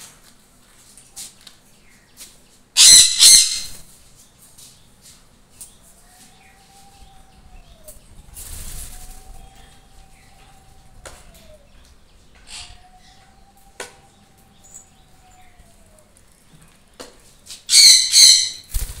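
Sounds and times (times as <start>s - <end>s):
parrot harsh screeches: 2.8s - 3.8s, 12.5s - 12.8s, 17.7s - 18.7s
wings fluttering: 6.2s - 11.6s, 18.5s - 19.0s.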